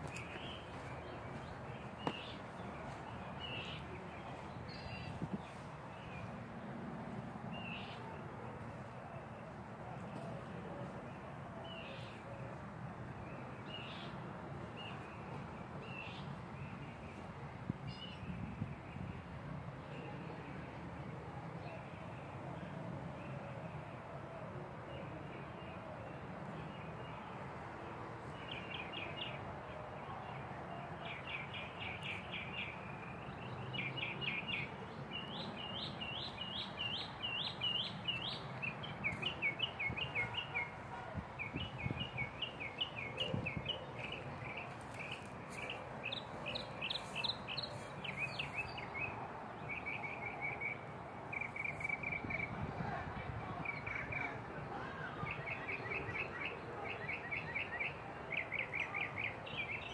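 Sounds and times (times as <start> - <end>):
songbird chirping: 0.0 - 19.2, 25.0 - 52.6
low outdoor background: 0.0 - 59.9.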